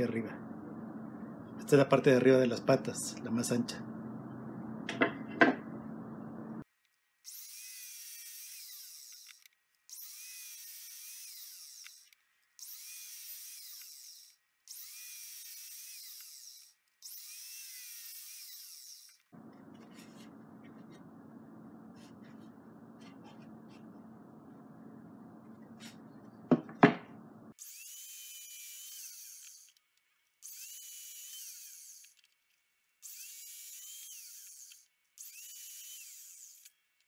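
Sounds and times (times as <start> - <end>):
low steady hum: 0.0 - 6.6, 19.3 - 27.5
miter saw cutting wood: 7.3 - 20.9, 27.6 - 29.8, 30.4 - 32.2, 33.0 - 36.7.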